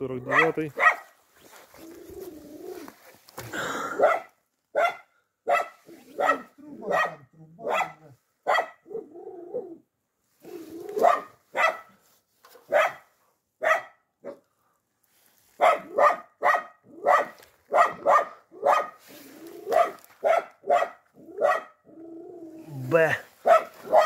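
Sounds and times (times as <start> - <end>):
dog barking: 0.2 - 1.1, 3.9 - 9.1, 10.9 - 12.0, 12.7 - 14.5, 15.6 - 19.0, 19.7 - 21.8, 23.4 - 24.0.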